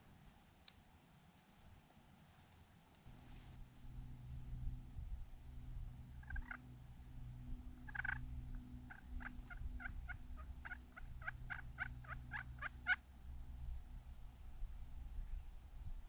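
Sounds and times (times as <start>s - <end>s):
turkey yelping: 6.2s - 6.6s, 7.9s - 8.2s, 8.9s - 13.0s.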